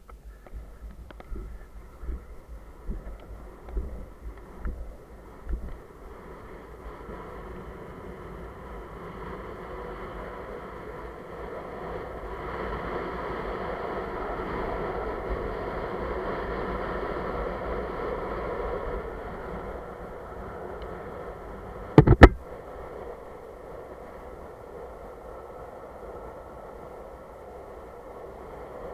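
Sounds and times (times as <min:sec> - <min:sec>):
longboard wheels rolling on asphalt: 0:00.0 - 0:28.9
wind rushing over microphone: 0:00.0 - 0:28.9
sharp knocks: 0:22.0 - 0:22.4.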